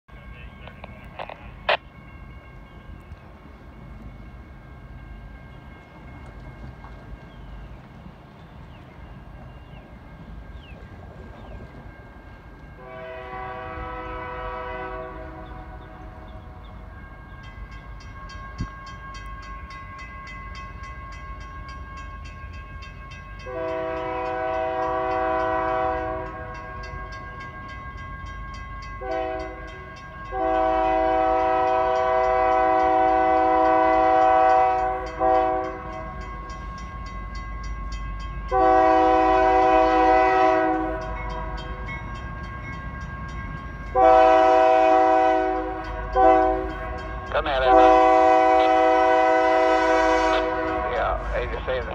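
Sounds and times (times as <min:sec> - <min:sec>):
diesel engines rumbling: 0:00.1 - 0:01.9, 0:38.3 - 0:51.9
locomotive air horn blasts: 0:12.8 - 0:16.3, 0:23.4 - 0:27.5, 0:28.9 - 0:36.2, 0:38.5 - 0:41.6, 0:43.2 - 0:51.5.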